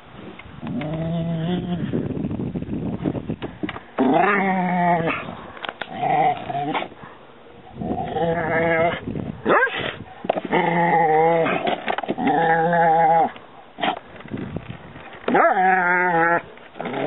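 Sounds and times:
dog yelping: 0:08.6 - 0:11.6
dog whining: 0:15.3 - 0:17.0.

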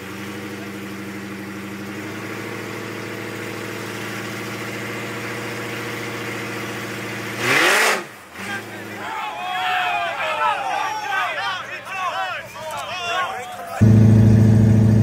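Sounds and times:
car engine idling and revving: 0:00.0 - 0:09.2, 0:13.8 - 0:15.0.

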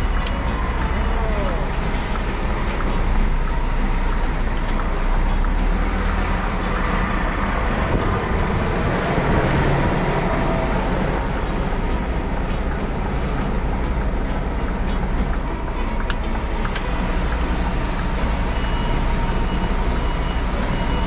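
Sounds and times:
road and traffic noise: 0:00.0 - 0:21.0
truck diesel engine droning: 0:00.0 - 0:21.0.

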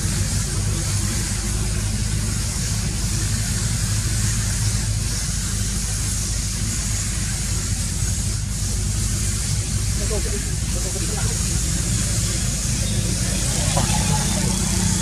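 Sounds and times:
high hiss: 0:00.0 - 0:15.0
low engine-like hum: 0:00.0 - 0:15.0.

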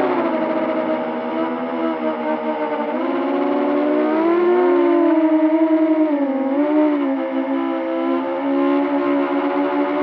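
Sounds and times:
drone motors whining: 0:00.0 - 0:10.0.

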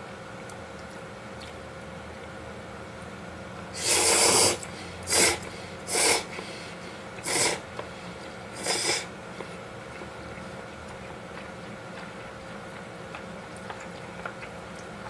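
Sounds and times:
man slurping noodles: 0:03.8 - 0:06.4, 0:07.2 - 0:07.6, 0:08.6 - 0:09.1.

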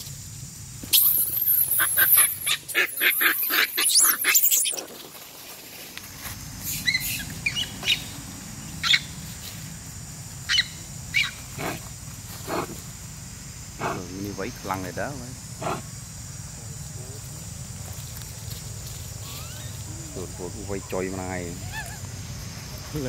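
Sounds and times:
monkeys shrieking: 0:00.9 - 0:04.9, 0:06.8 - 0:08.1, 0:08.8 - 0:09.1, 0:10.5 - 0:11.8, 0:19.2 - 0:20.1, 0:21.5 - 0:22.2.

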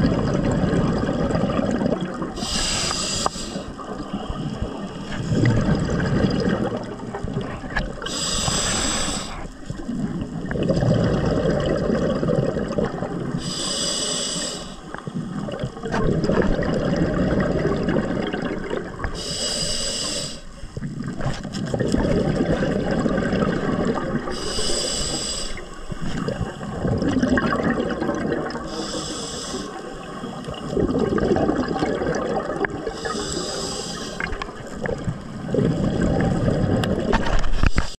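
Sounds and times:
rumbling exhaled bubbles: 0:00.0 - 0:13.5, 0:14.8 - 0:19.2, 0:20.8 - 0:24.8, 0:25.6 - 0:37.9
regulator inhalation hiss: 0:02.4 - 0:05.0, 0:08.0 - 0:09.7, 0:13.4 - 0:15.0, 0:19.1 - 0:20.8, 0:24.2 - 0:26.1, 0:28.7 - 0:30.4, 0:32.8 - 0:34.4.

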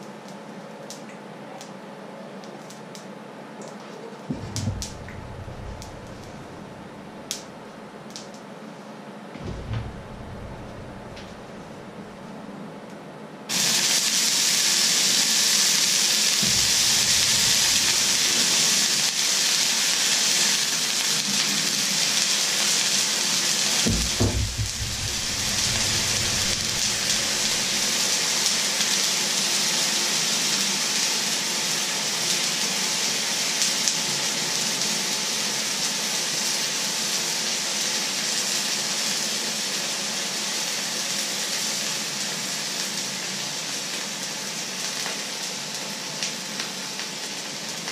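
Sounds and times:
low bump: 0:04.3 - 0:07.2, 0:09.4 - 0:12.4, 0:16.4 - 0:18.3, 0:23.9 - 0:28.0
water sizzling in hot wok: 0:04.3 - 0:07.5, 0:13.5 - 0:47.9.

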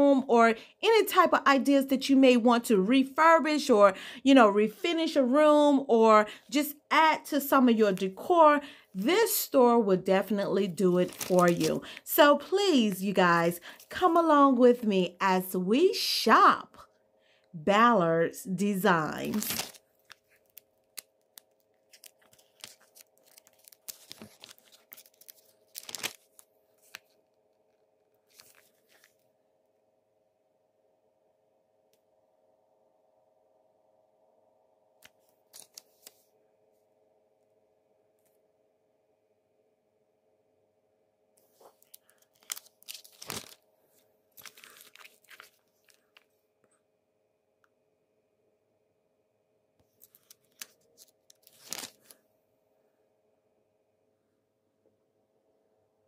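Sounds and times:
faint steady hum: 0:00.0 - 0:56.0
rustling and crunching: 0:19.3 - 0:20.6, 0:21.8 - 0:27.2, 0:41.6 - 0:43.6, 0:44.4 - 0:46.2.

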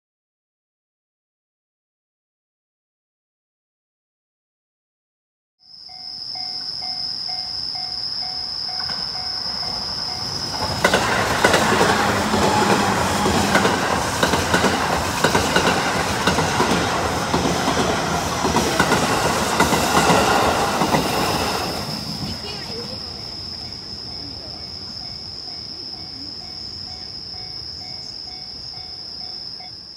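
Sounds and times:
insect trill: 0:05.6 - 0:29.9
train wheels clattering: 0:08.8 - 0:23.1.

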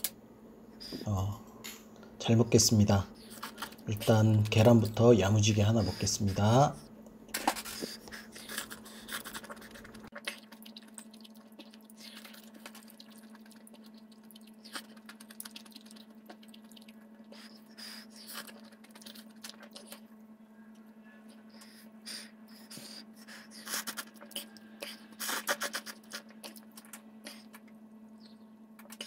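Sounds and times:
chewing: 0:03.2 - 0:04.6, 0:07.4 - 0:28.2, 0:28.8 - 0:29.0.

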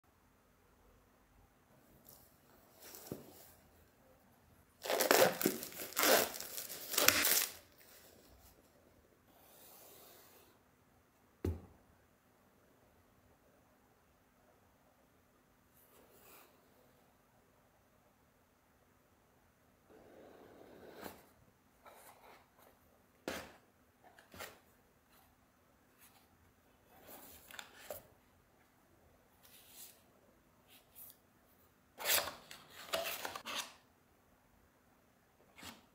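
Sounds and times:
plastic shrink-wrap crinkling: 0:04.8 - 0:07.7.

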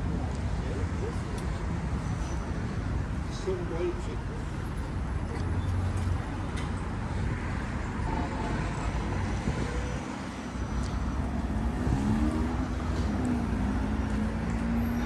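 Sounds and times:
steady road noise: 0:00.0 - 0:15.0
vehicle passing: 0:05.8 - 0:15.0.

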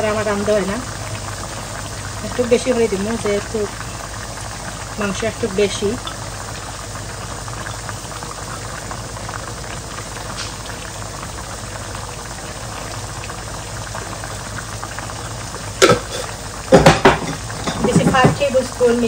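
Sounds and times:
meat simmering and bubbling: 0:00.0 - 0:19.0
utensil knocking on pot: 0:15.8 - 0:18.4.

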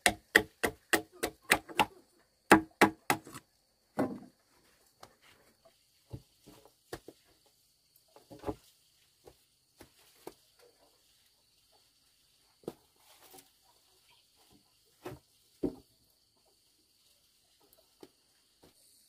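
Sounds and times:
wooden poles knocking: 0:00.0 - 0:03.4.

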